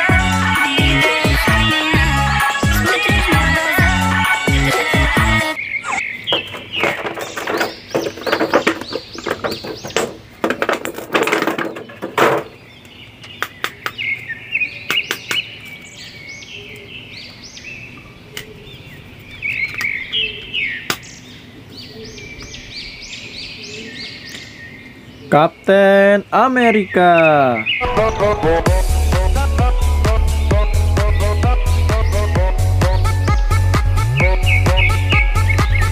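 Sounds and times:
bird chirping: 5.4s - 10.5s, 11.7s - 28.6s, 29.6s - 35.9s.

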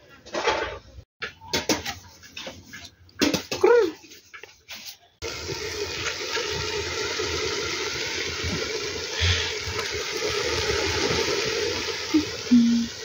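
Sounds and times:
pot bubbling: 5.2s - 13.0s.

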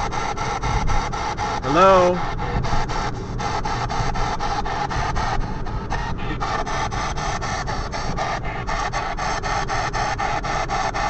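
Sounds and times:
choppy radio static bursts: 1.6s - 2.2s.

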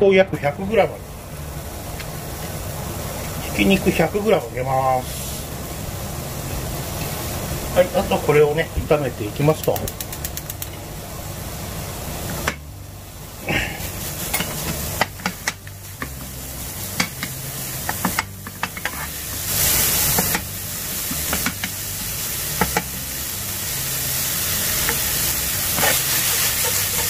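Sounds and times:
meat sizzling in a frying pan: 0.5s - 27.0s
metal ladle scraping a pan: 25.7s - 27.0s.

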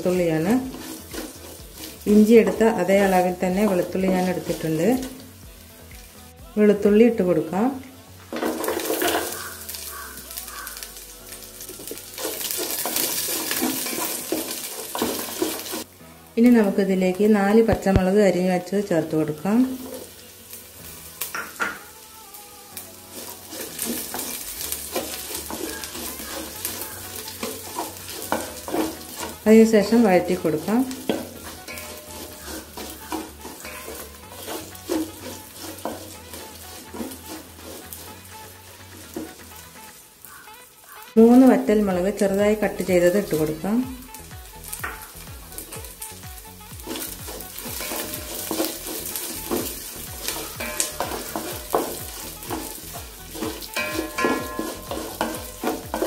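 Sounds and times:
wooden spatula scraping pot: 0.0s - 5.2s, 8.3s - 10.8s, 11.8s - 15.9s, 23.1s - 39.5s, 46.8s - 56.0s
garlic sizzling in oil: 0.0s - 56.0s.

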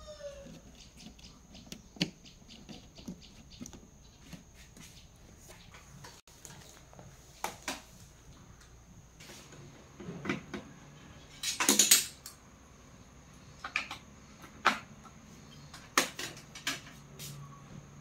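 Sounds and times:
small tools clicking and clattering: 11.3s - 12.4s.

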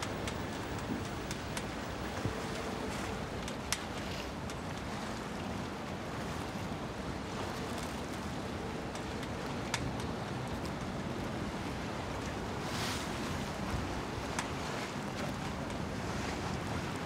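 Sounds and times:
wind and water rushing: 0.0s - 17.0s.

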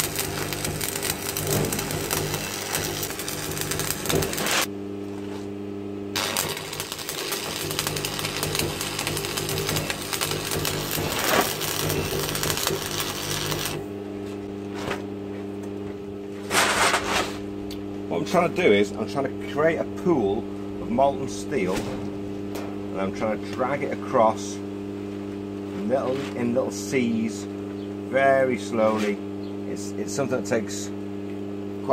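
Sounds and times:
arc welding crackle and sizzle: 0.0s - 5.5s, 6.1s - 15.0s
steady hum: 0.0s - 31.9s.

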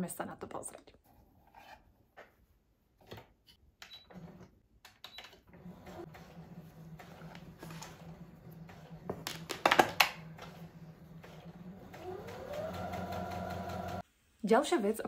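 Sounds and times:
sewing machine motor running: 5.5s - 14.0s.

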